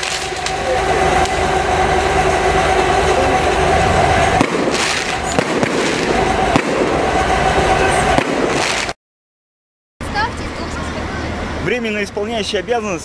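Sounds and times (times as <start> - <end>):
fire crackling: 0.0 - 9.0
fire roaring: 0.0 - 9.0
fireworks bangs: 0.0 - 9.0
steady hum: 0.0 - 9.0.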